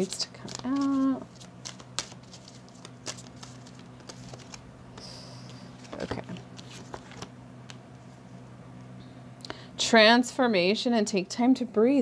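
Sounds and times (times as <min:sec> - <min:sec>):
cards being shuffled by hand: 0:00.0 - 0:08.1
steady low hum: 0:00.0 - 0:12.0.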